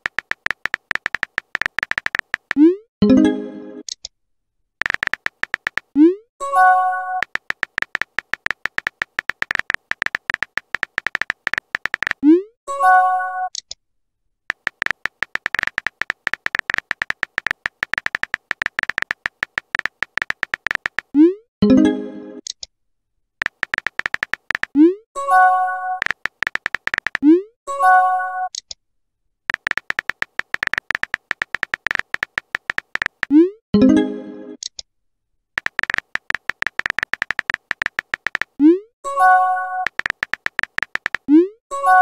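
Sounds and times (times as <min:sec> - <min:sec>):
rapid keyboard tap clicks: 0:00.0 - 0:02.7, 0:04.8 - 0:06.0, 0:07.2 - 0:12.2, 0:14.5 - 0:21.2, 0:23.4 - 0:24.8, 0:26.0 - 0:27.2, 0:29.5 - 0:33.4, 0:35.6 - 0:38.6, 0:39.8 - 0:41.3.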